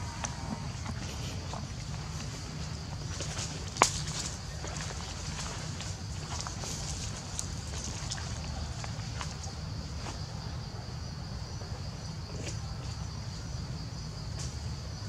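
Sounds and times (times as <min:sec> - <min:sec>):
forest insects droning: 0:00.0 - 0:15.0
footsteps on dry leaves: 0:00.4 - 0:10.1.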